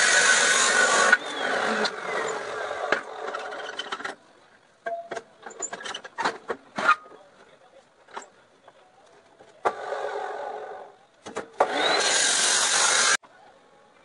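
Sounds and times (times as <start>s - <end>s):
chop saw cutting steel: 0.0s - 4.1s, 9.6s - 13.2s
metal clanks and knocks: 4.8s - 7.2s.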